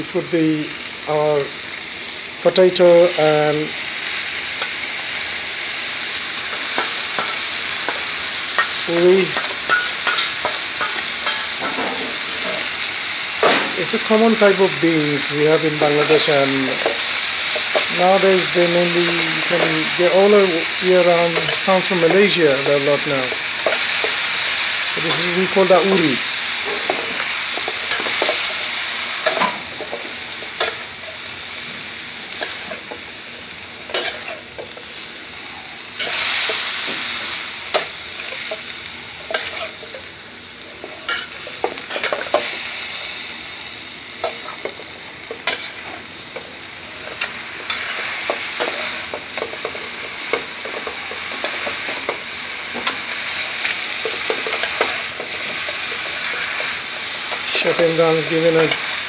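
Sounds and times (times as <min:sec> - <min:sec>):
food sizzling in hot oil: 0:00.0 - 0:59.0.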